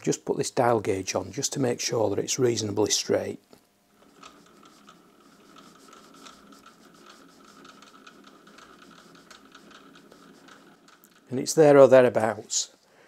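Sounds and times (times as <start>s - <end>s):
lathe chuck scratching and ticking: 4.0s - 11.4s.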